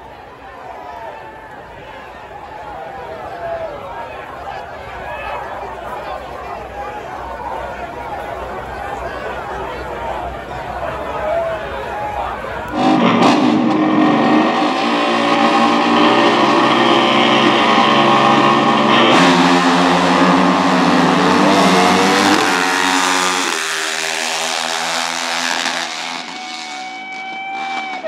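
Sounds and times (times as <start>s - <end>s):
dirt bike engines at high revs: 12.7s - 28.0s.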